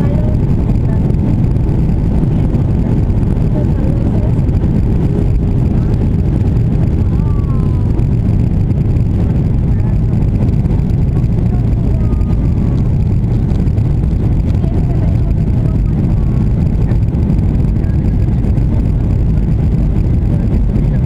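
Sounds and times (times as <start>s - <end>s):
jet engines rumbling in cabin: 0.0s - 21.0s.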